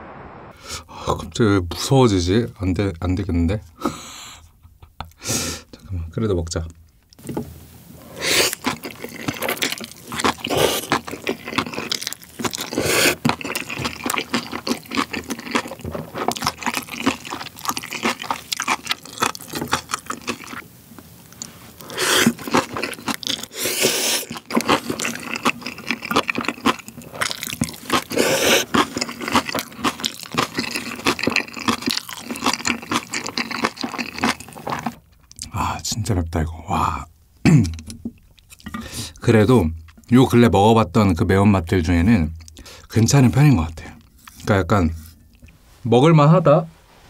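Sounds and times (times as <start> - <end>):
noodles slurped: 8.0 - 20.6, 21.4 - 35.0
wet chewing and smacks: 8.4 - 35.5, 37.7 - 39.2, 39.8 - 40.1, 42.4 - 42.7.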